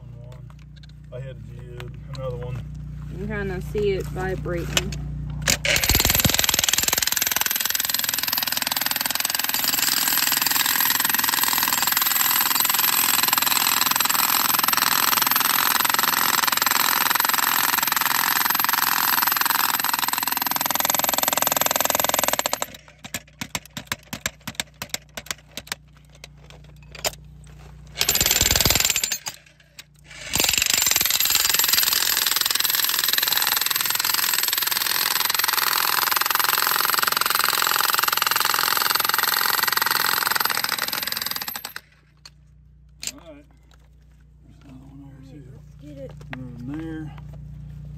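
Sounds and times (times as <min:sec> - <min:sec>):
jackhammer chiselling rock: 0:05.5 - 0:25.8, 0:27.9 - 0:42.0.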